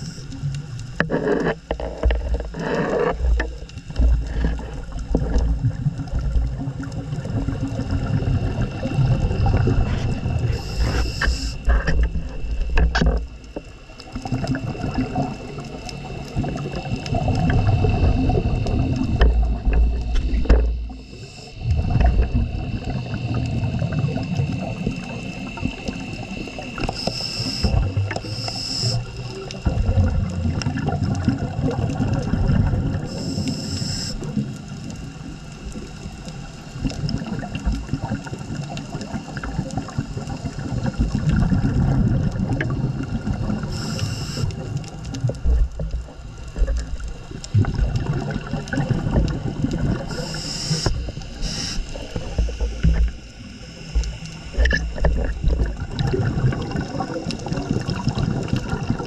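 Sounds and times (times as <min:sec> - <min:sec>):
regulator inhalation hiss: 0:00.0 - 0:00.5, 0:08.8 - 0:11.9, 0:20.2 - 0:29.4, 0:33.0 - 0:34.6, 0:43.6 - 0:44.7, 0:50.0 - 0:54.7
exhaled bubbles rumbling: 0:00.0 - 0:59.0.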